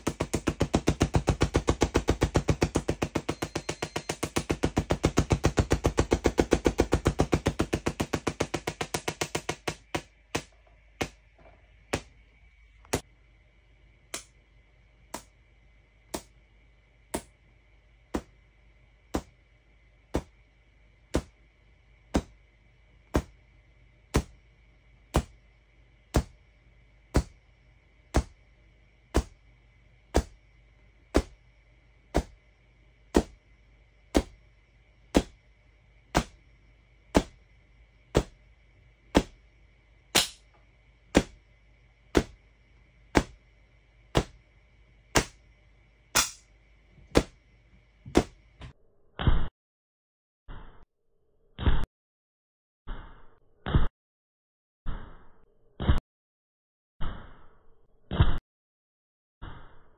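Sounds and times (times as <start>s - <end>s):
faint steady hum: 0.0s - 48.8s
tesla coil arc cracks: 40.1s - 40.5s, 46.1s - 46.5s.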